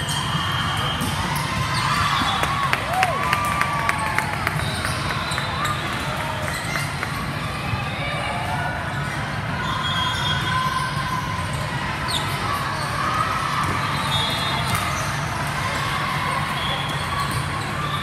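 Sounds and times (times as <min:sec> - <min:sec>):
balls bouncing and being hit: 0:00.0 - 0:03.6
echoing chatter: 0:00.0 - 0:18.0.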